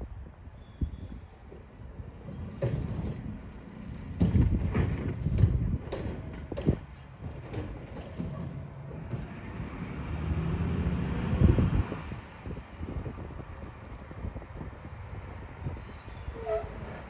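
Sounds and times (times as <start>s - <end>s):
diesel engine and hydraulics rumbling: 0.0s - 17.0s
loud knocks and bangs: 4.1s - 9.3s.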